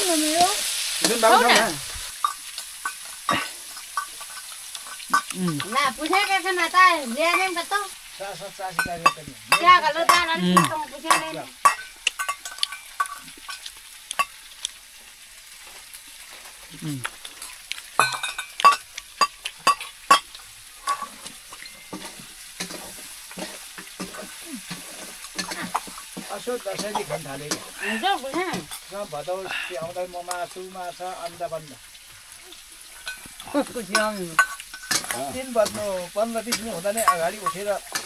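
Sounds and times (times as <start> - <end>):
meat sizzling in pan: 0.0 - 38.0
spatula scraping pan: 20.8 - 28.9, 32.8 - 38.0.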